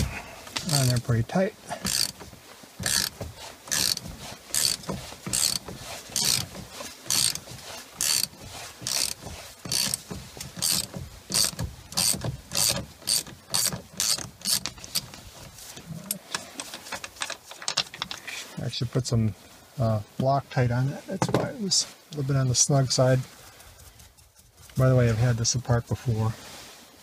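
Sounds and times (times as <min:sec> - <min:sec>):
ratchet wrench clicking: 0:00.7 - 0:01.1, 0:01.8 - 0:02.2, 0:02.8 - 0:06.5, 0:07.1 - 0:07.4, 0:08.0 - 0:10.0, 0:10.6 - 0:15.0.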